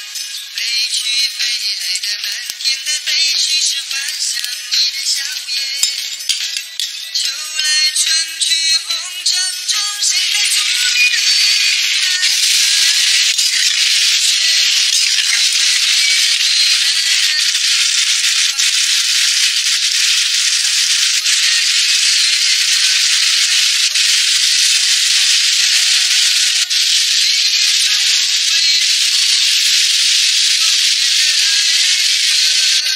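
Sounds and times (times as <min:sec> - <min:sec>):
food sizzling in a pot: 0:09.7 - 0:32.9.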